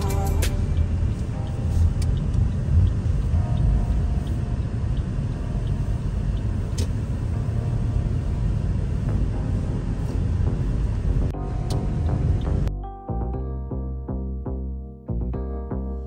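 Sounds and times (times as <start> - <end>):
car cabin rumble: 0.0 - 12.7.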